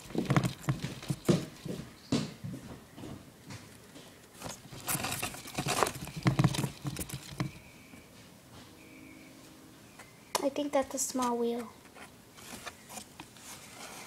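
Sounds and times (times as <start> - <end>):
hamster scratching on cardboard: 4.4 - 7.6.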